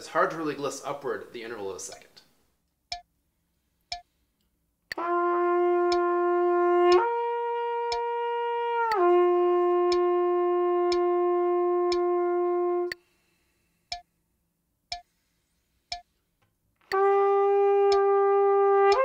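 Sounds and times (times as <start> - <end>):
metronome clicking: 3.9 - 4.1, 5.9 - 6.1, 9.9 - 10.1, 10.9 - 11.1, 11.9 - 12.1, 13.9 - 14.1, 14.9 - 15.1, 15.9 - 16.2, 16.8 - 17.1, 17.9 - 18.1
trumpet slurred notes: 4.9 - 13.0, 16.8 - 19.0.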